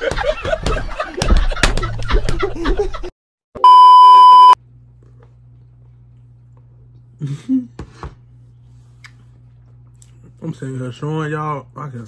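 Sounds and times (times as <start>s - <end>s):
test-tone beep: 3.6s - 4.6s.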